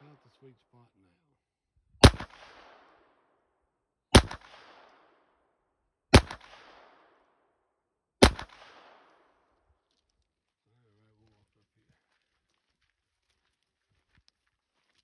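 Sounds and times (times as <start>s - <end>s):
pistol shots with echo: 2.0s - 3.2s, 4.1s - 5.3s, 6.1s - 7.4s, 8.2s - 9.4s.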